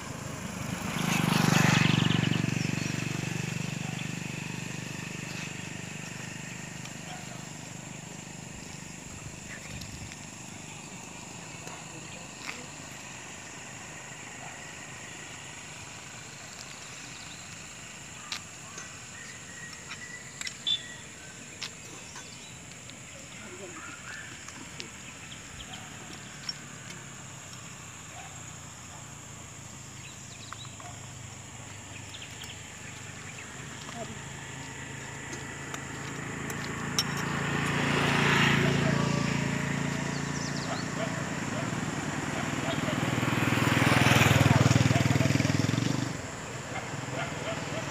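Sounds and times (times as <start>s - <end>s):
vehicle passing: 0.0s - 18.6s, 25.0s - 47.9s
light clinks: 36.6s - 37.3s.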